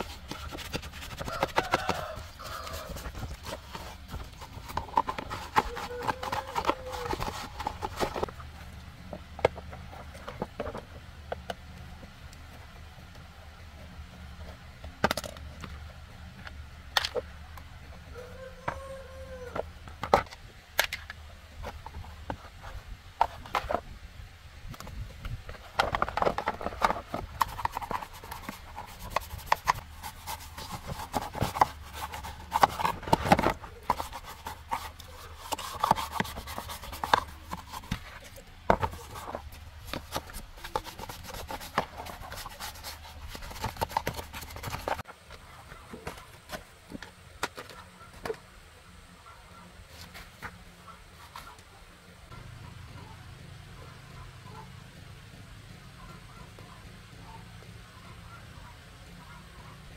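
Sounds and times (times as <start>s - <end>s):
rubbing and scraping: 0.0s - 11.4s, 24.7s - 48.4s, 49.4s - 51.7s.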